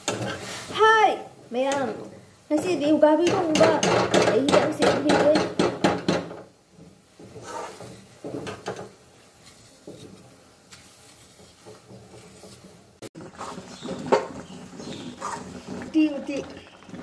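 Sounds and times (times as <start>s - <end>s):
peeler scraping a potato: 7.4s - 7.9s, 13.4s - 15.8s
metal ladle stirring curry: 9.4s - 16.9s.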